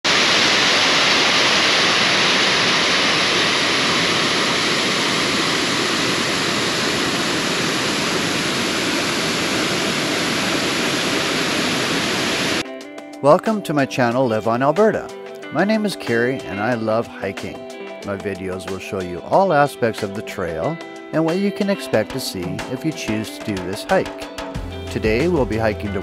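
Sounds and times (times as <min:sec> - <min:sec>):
waterfall rushing: 0:00.0 - 0:12.6.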